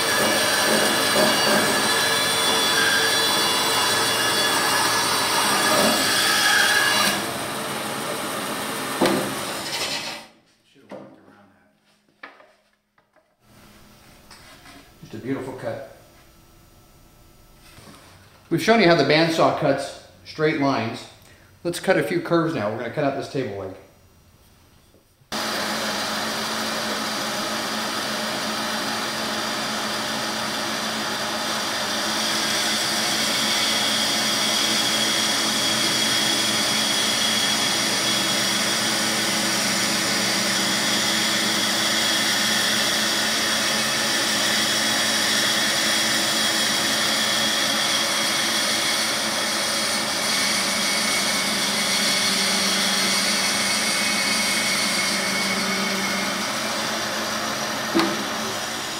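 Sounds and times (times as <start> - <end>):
bandsaw cutting wood: 0.0 - 10.3, 25.3 - 58.9.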